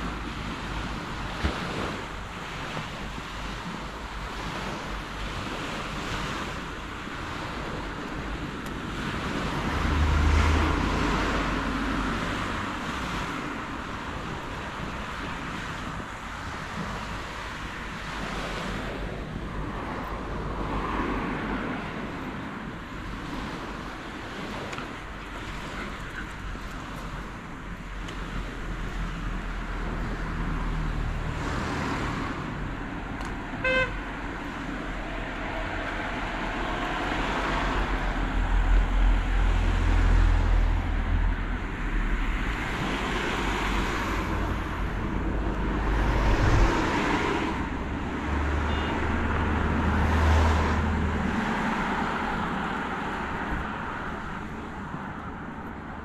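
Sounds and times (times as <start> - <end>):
vehicles passing by: 0.0 - 56.0
car horn toot: 33.6 - 34.0, 48.6 - 49.2.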